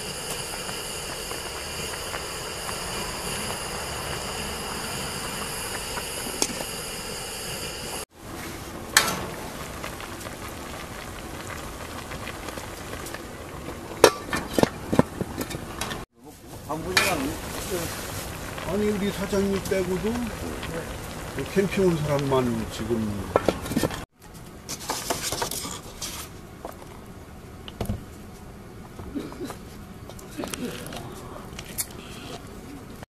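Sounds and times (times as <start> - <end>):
faint high whine: 0.0 - 13.7
pot boiling on burner: 0.0 - 33.0.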